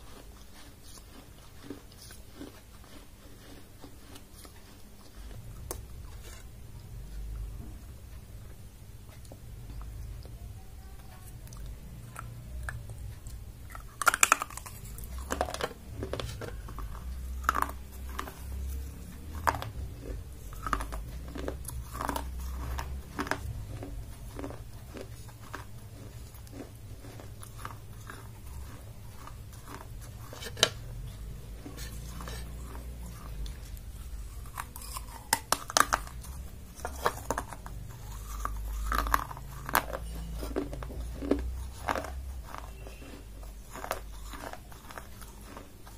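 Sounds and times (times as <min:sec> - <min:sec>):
clay cup cracking in teeth: 0:34.5 - 0:45.6.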